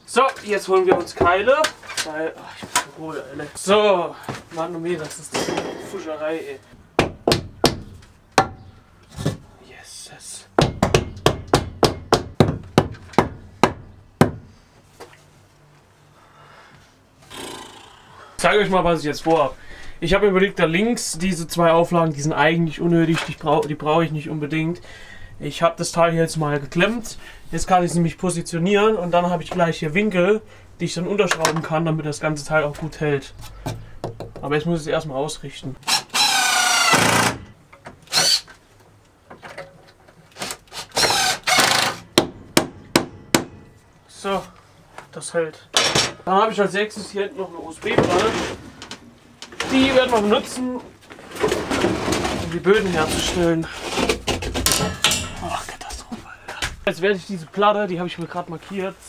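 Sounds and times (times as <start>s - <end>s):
cordless drill driving screw: 35.8s - 37.4s, 38.1s - 38.5s, 40.4s - 42.0s.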